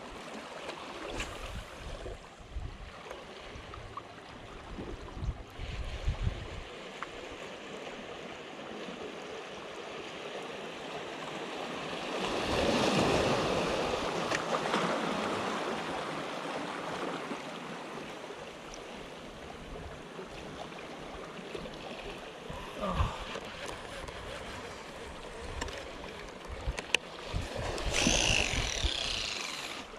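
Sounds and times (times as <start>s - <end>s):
small sea waves washing on rocks: 11.3s - 29.9s.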